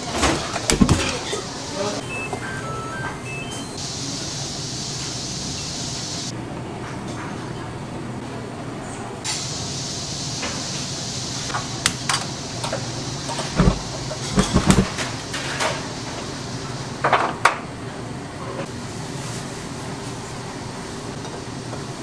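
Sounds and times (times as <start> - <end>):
steady hiss: 3.8 - 6.3, 9.3 - 17.0
dishes and utensils clattering: 12.7 - 15.8.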